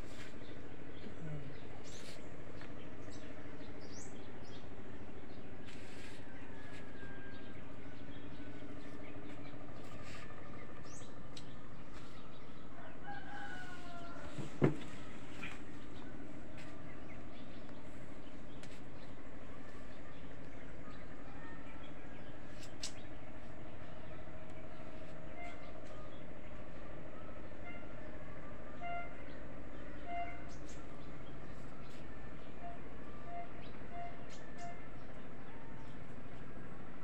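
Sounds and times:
outdoor background noise: 0:00.0 - 0:37.0
rooster crowing: 0:06.0 - 0:07.6, 0:12.6 - 0:14.6.

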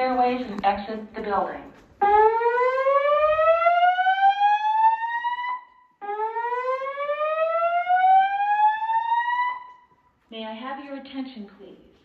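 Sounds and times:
fire alarm whoop tone: 0:02.0 - 0:10.0.

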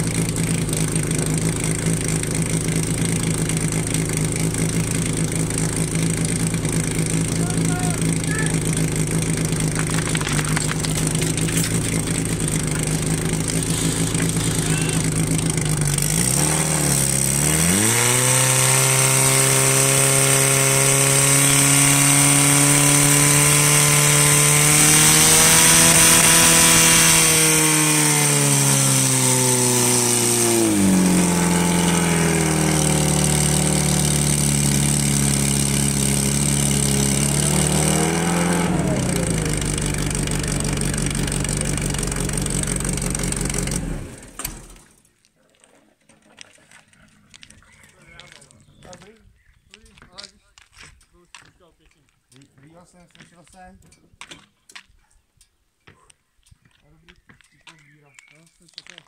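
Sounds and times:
fire pump engine revving: 0:00.0 - 0:45.0.

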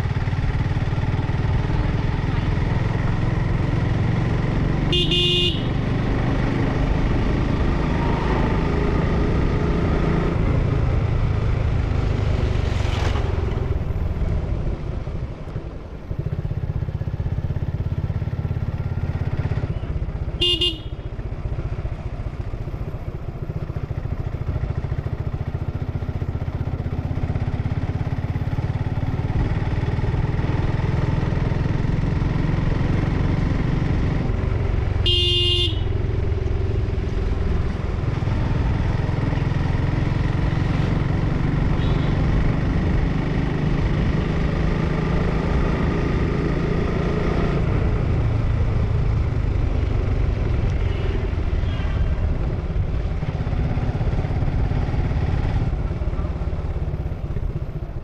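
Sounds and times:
motorcycle engine running: 0:00.0 - 0:58.0
horn beep: 0:04.9 - 0:05.7, 0:19.7 - 0:21.0, 0:35.1 - 0:36.0.

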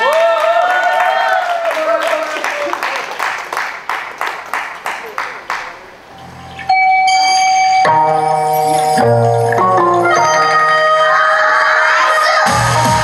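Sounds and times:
keyboard backing music: 0:06.2 - 0:13.0.

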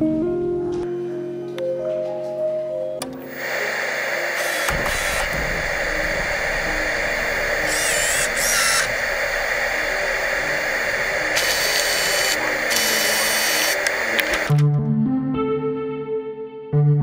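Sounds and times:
harsh buzzing drone: 0:03.2 - 0:14.6.

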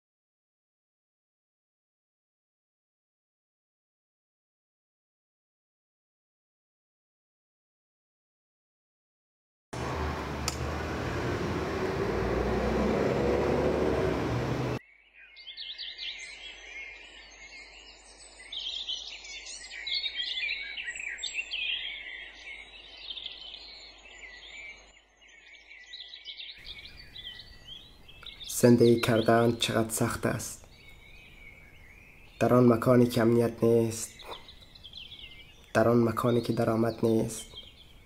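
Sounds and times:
street noise rumble: 0:09.8 - 0:14.8
small birds chirping: 0:09.8 - 0:38.0.

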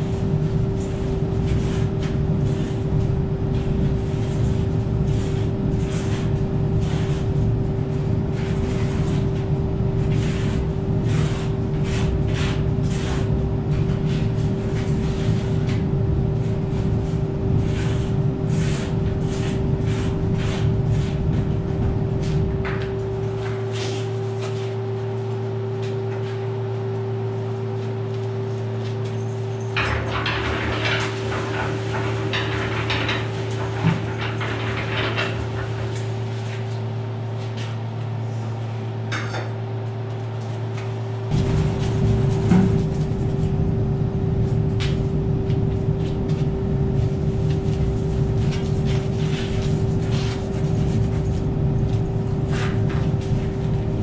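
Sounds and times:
concrete churning in mixer drum: 0:00.0 - 0:26.2, 0:29.6 - 0:37.2, 0:41.2 - 0:54.0
motor hum: 0:41.3 - 0:54.0.

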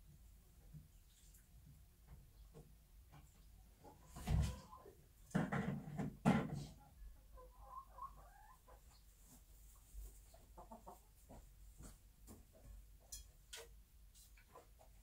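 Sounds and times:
hen clucking softly: 0:06.8 - 0:09.1, 0:10.2 - 0:11.2.

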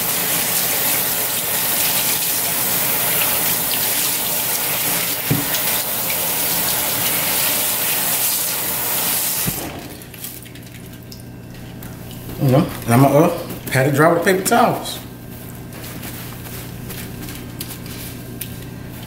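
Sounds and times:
faucet water splashing on meat: 0:00.0 - 0:11.3
knock: 0:05.3 - 0:05.5.

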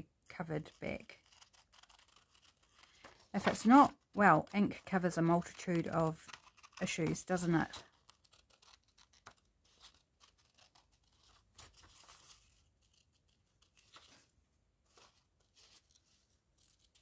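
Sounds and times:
scissors snipping paper: 0:00.6 - 0:14.2
paper rustling: 0:00.7 - 0:17.0.

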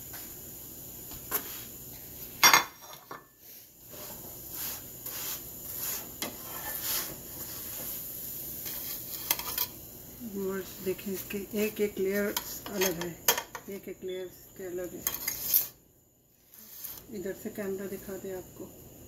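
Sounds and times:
metal utensil tapping and scraping: 0:08.6 - 0:09.7, 0:12.2 - 0:13.6.

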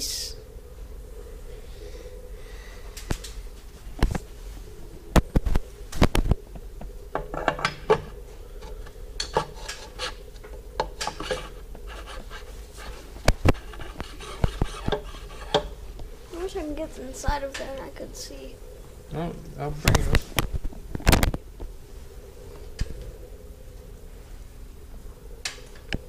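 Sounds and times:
metal rubbing and scraping: 0:07.3 - 0:17.5.

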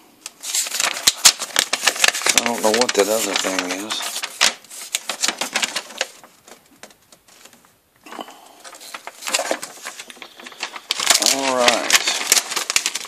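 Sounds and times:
paper rustling and crinkling: 0:00.3 - 0:13.0.

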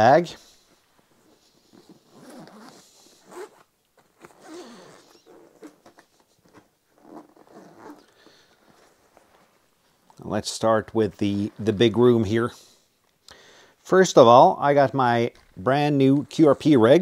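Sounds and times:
zipper being pulled open: 0:01.2 - 0:09.0.

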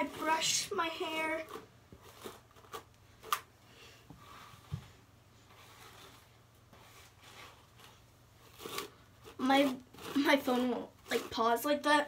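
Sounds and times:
hairbrush rustling through hair: 0:04.1 - 0:12.0.

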